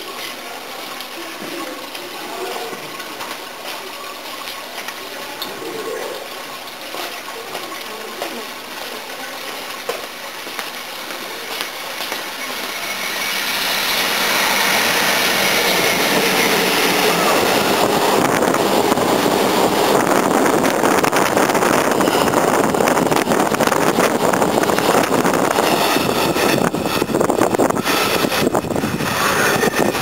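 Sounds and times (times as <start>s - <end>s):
train wheel and rail noise: 0.0s - 30.0s.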